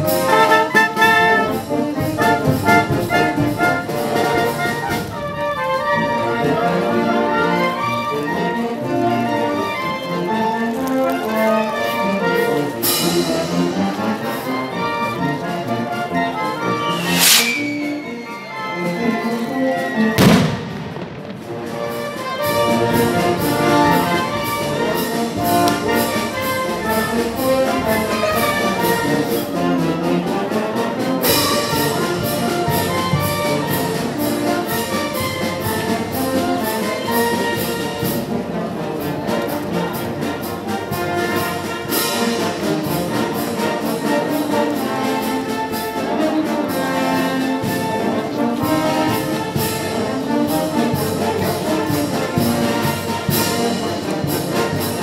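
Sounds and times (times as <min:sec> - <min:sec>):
steady drum beat: 0:00.0 - 0:04.9
brass band playing: 0:00.0 - 0:55.0.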